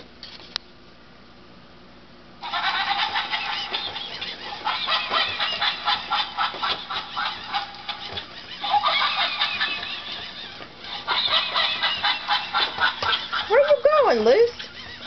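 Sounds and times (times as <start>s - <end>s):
toy squawking chattering calls: 2.4s - 15.0s.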